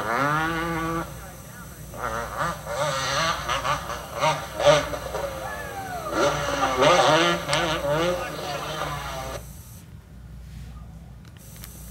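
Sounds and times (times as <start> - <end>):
motocross bike engine revving: 0.0 - 9.9
indistinct voices: 0.7 - 9.5.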